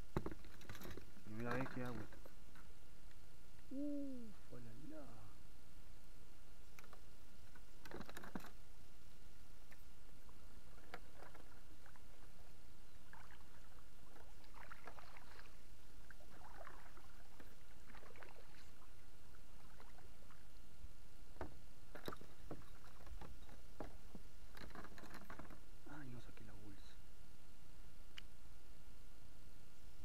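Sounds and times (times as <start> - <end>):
paddle strokes splashing: 10.4 - 20.5.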